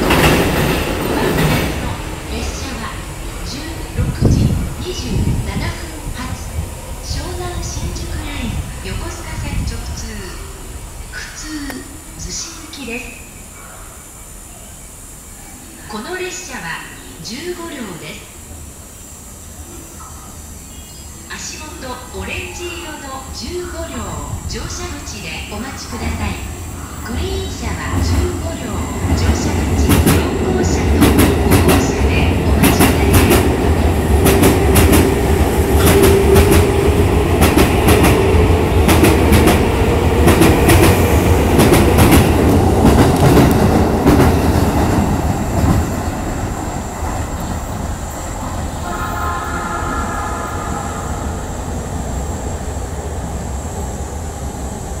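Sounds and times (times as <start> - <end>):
wheels clacking over rail joints: 0.0 - 2.0
steady train hum: 0.0 - 55.0
train rumbling past: 0.0 - 55.0.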